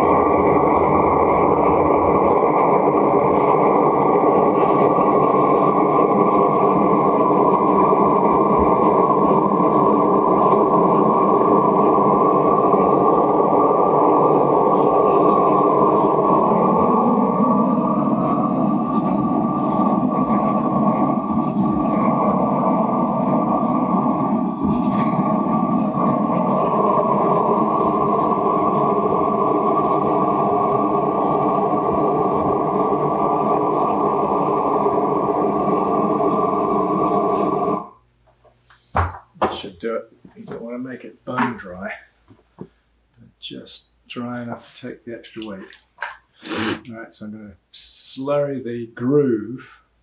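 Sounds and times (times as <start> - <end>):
gas torch rushing flame: 0.0 - 38.0, 44.5 - 47.2.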